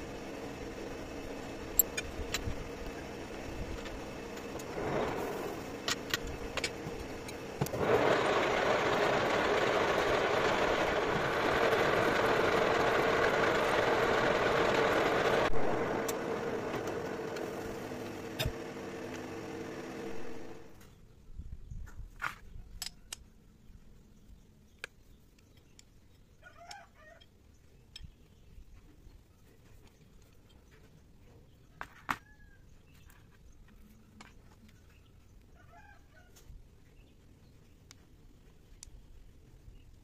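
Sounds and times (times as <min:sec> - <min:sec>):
metal lathe running: 0:00.0 - 0:20.8
tool cutting metal: 0:00.0 - 0:20.8.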